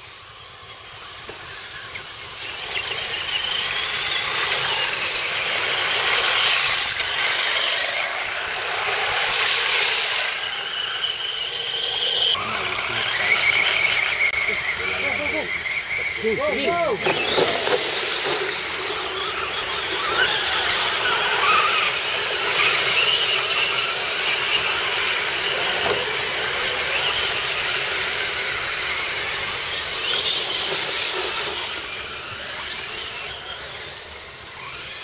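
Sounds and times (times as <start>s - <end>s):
electric motors whining: 0.0s - 35.0s.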